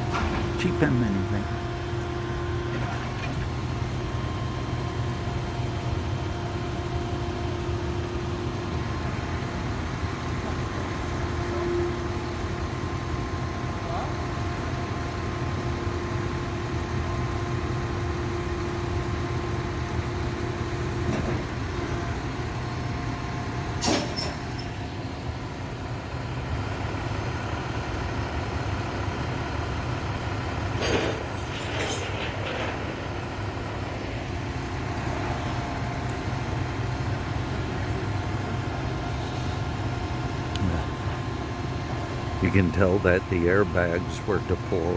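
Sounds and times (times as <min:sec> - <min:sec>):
diesel engines idling: 0:00.0 - 0:44.9.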